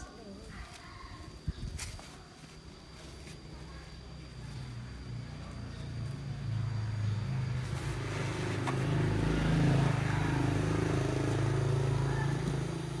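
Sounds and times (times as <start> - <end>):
vehicle engine running: 3.0 - 13.0.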